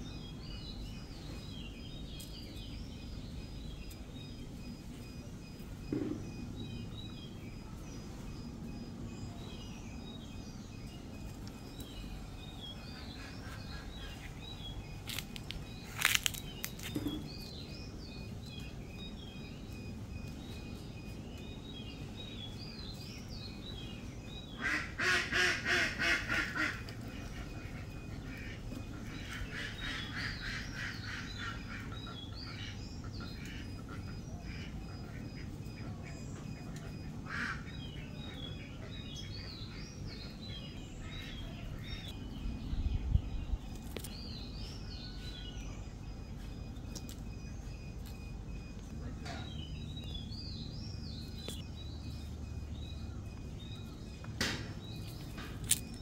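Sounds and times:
small birds chirping: 0.0 - 56.0
loud repeated bird calls: 10.5 - 42.2.

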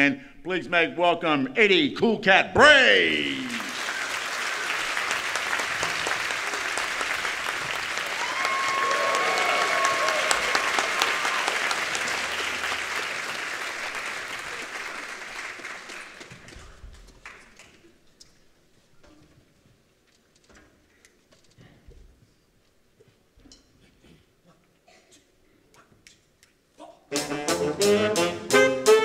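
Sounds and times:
audience applauding: 3.0 - 17.8.

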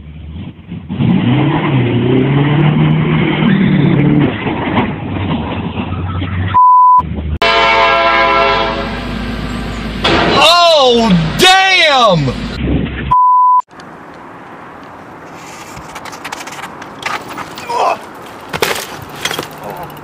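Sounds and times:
car engine revving: 0.0 - 6.4
censor beep: 6.5 - 7.0, 13.1 - 13.7
train horn blast: 7.4 - 9.1
car sliding on gravel: 15.1 - 20.0.

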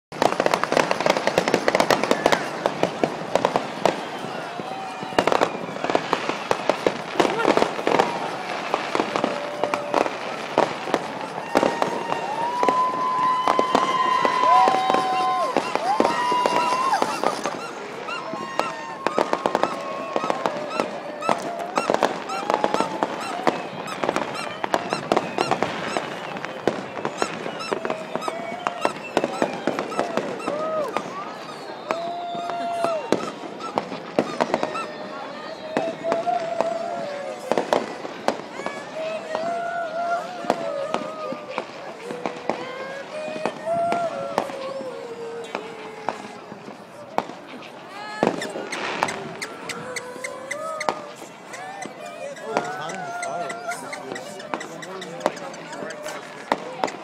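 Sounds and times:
crowd voices: 0.1 - 57.0
fireworks popping and banging: 0.1 - 57.0.

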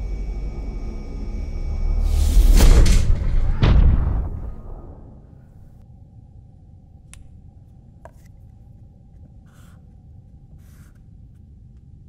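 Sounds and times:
low rumbling drone: 0.0 - 9.4.

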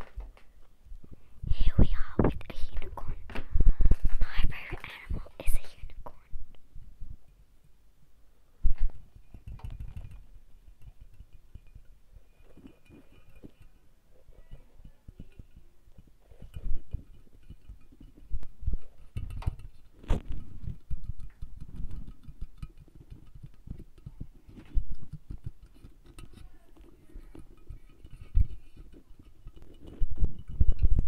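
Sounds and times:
tapping on ceramic figurine: 9.2 - 13.8, 14.4 - 31.0.

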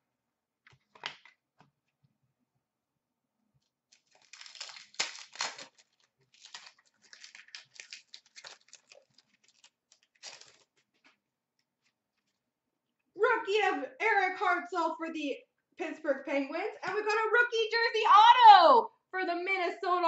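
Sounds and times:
plastic wrapper crinkling and tearing: 3.9 - 12.4.

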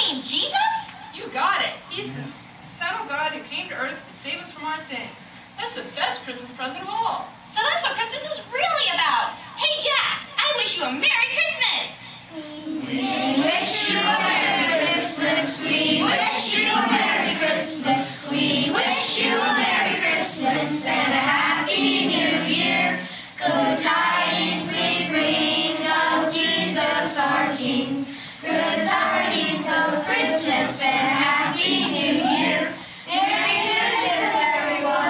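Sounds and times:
children's choir singing: 12.8 - 35.0.

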